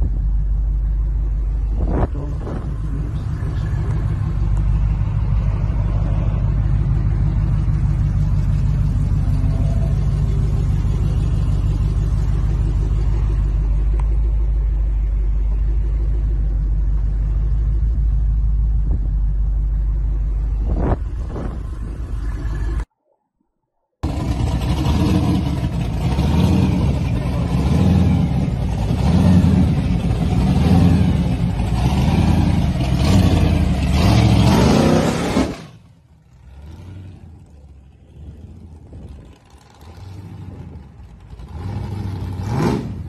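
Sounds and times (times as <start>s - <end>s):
loud low rumble: 0.0s - 22.9s.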